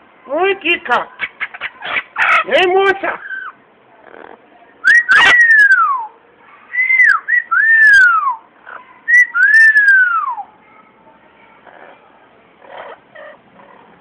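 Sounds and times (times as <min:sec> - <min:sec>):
parrot whistling: 0:04.8 - 0:06.0, 0:06.7 - 0:08.4, 0:09.1 - 0:10.4.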